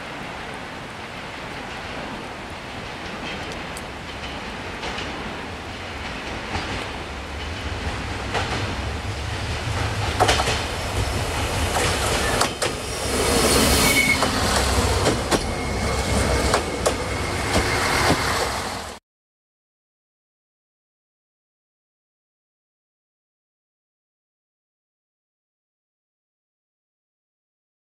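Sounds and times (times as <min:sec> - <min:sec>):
diesel train engine rumble: 0:00.1 - 0:19.0
wheels clicking over rail joints: 0:01.5 - 0:12.9, 0:14.1 - 0:18.7
high wheel squeal: 0:10.7 - 0:18.9.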